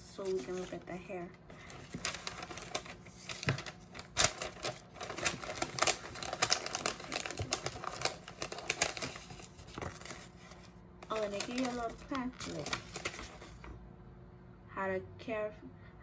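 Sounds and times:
packages clicking and rustling: 1.5 - 13.7.

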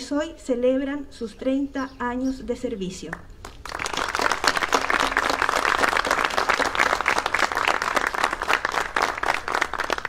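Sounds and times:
small audience applauding: 3.4 - 10.0.

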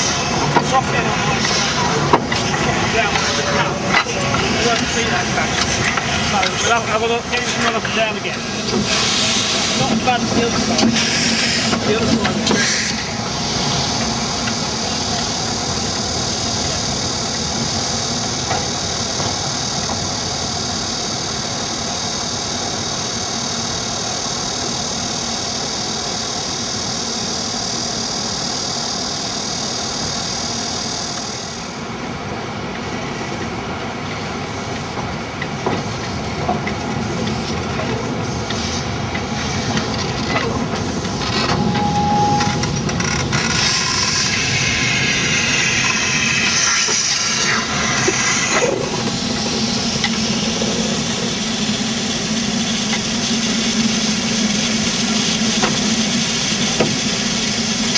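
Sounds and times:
steam hissing: 0.0 - 57.9.

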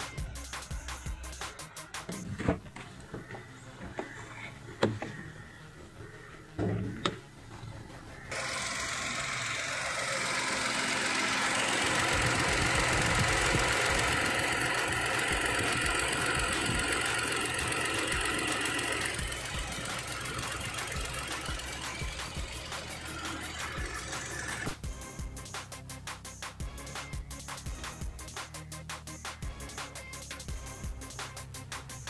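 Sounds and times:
radiator cooling fan rushing: 2.3 - 24.8
car engine idling: 2.9 - 24.8.

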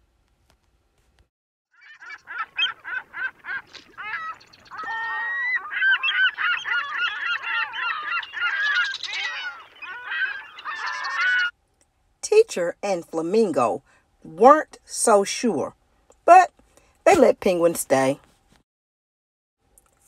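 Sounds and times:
flock of birds calling: 1.8 - 11.5.

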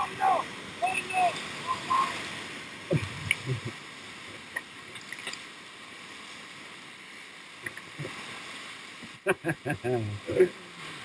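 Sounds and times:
raft thumping on waves: 0.0 - 3.8
river rapid rushing: 0.0 - 11.0.

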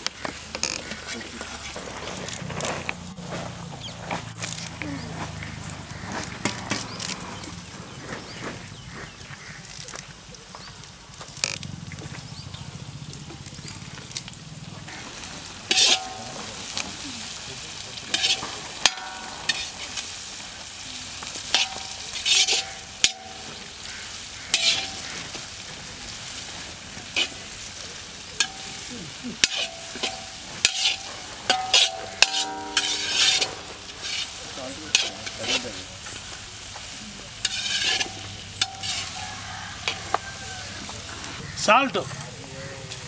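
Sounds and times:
vegetables sizzling: 0.0 - 43.0
ladle scraping a wok: 14.9 - 41.4.

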